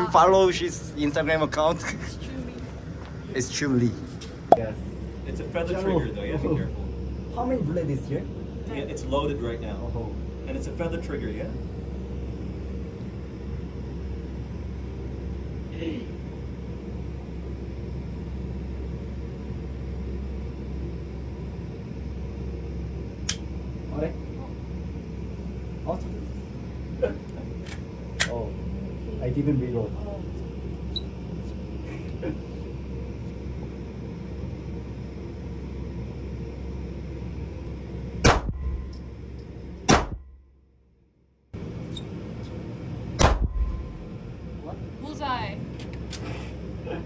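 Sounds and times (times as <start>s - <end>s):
low room noise rumble: 0.0s - 47.0s
steady low hum: 0.0s - 47.0s
pistol shot: 38.2s - 38.6s, 39.9s - 40.2s, 43.2s - 43.8s.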